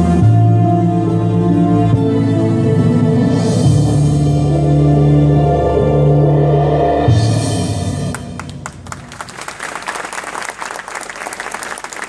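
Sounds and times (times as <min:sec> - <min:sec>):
crowd applauding: 0:08.1 - 0:12.0.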